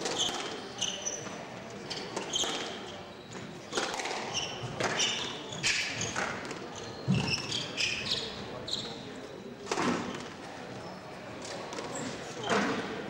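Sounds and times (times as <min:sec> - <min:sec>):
shoes squeaking on wooden floor: 0:04.3 - 0:09.0.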